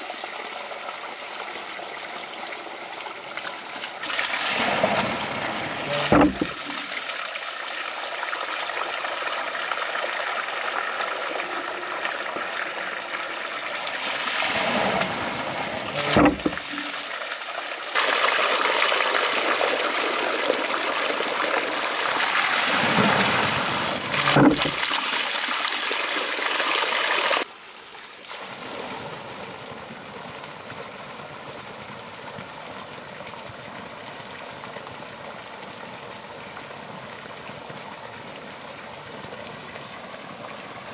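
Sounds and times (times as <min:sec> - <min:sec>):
water running into wooden trough: 0:04.0 - 0:07.2, 0:09.8 - 0:27.4.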